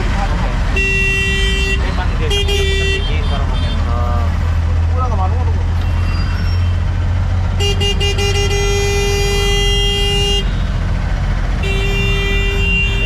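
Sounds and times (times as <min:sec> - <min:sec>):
rumble of engines and traffic: 0:00.0 - 0:13.0
vehicle horns honking: 0:00.7 - 0:04.3, 0:07.5 - 0:10.8, 0:11.5 - 0:13.0.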